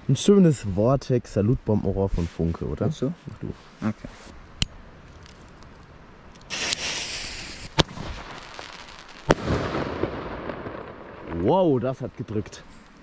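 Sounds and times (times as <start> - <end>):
firework fuse hissing: 6.4 - 10.2
firework tube pop: 6.5 - 8.3
firework shell bang: 9.3 - 10.8.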